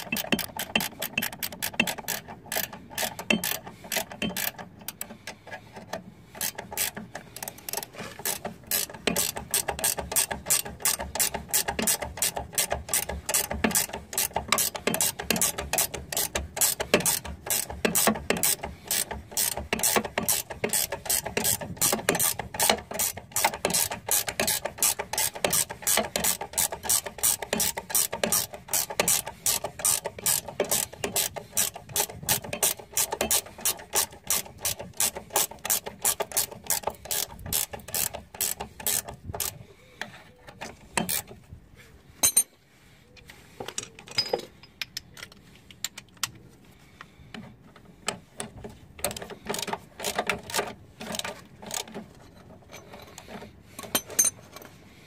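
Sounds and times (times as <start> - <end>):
socket ratchet clicking: 0.0 - 5.1, 6.4 - 39.6.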